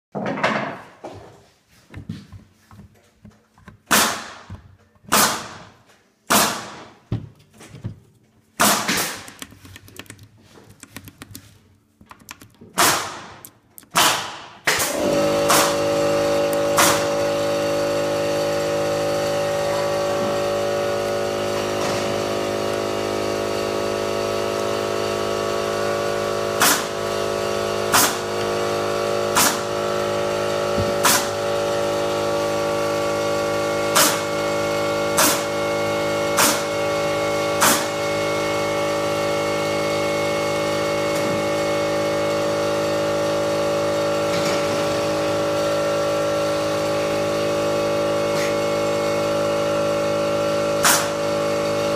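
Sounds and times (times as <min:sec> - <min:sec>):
sharp cracks: 0:12.8 - 0:15.8
machine motor humming: 0:14.8 - 0:51.9.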